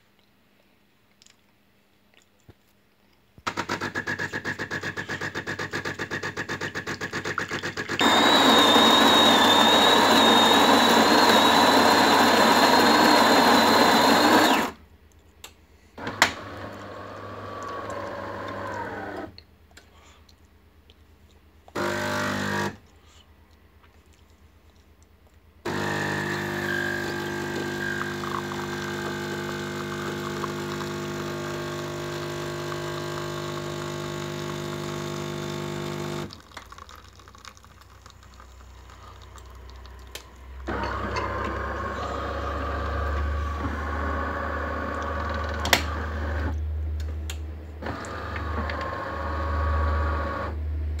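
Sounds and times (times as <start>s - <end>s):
espresso machine motor hum: 8.0s - 14.8s, 16.1s - 19.3s, 25.7s - 36.4s, 40.7s - 46.5s
coffee pouring into cup: 25.7s - 31.6s, 36.2s - 43.3s.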